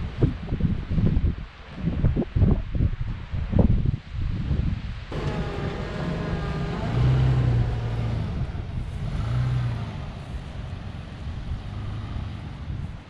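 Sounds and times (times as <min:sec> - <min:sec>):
vehicle engine revving: 0:05.1 - 0:12.9.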